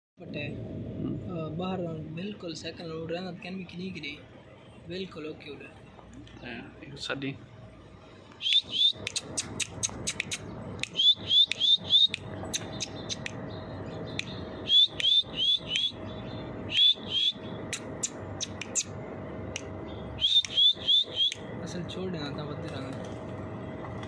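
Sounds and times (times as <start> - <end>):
bird clicking chips: 8.4 - 13.4, 16.8 - 18.9
bird chirping: 8.4 - 21.5.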